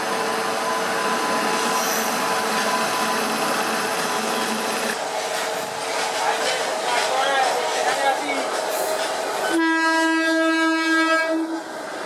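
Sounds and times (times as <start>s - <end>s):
electric locomotive whine and hum: 0.0s - 12.0s.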